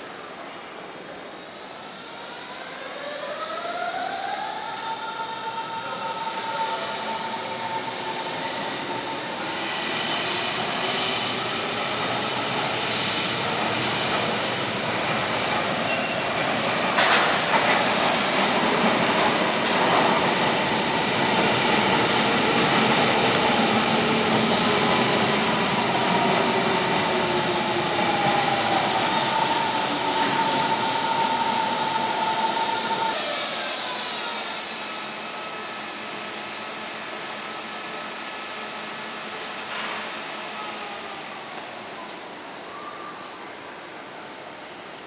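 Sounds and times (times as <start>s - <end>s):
squealing wheels: 6.4s - 16.3s.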